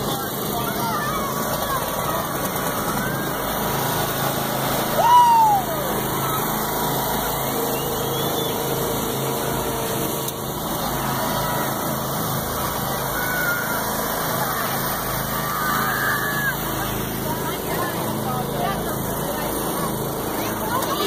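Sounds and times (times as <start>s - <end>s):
lawn tractor engines idling: 0.0s - 21.0s.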